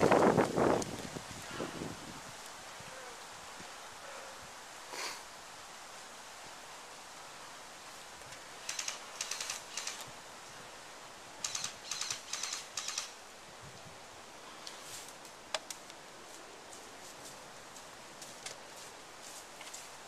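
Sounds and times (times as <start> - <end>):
airsoft rifle full-auto bursts: 8.6 - 10.0, 11.4 - 13.1.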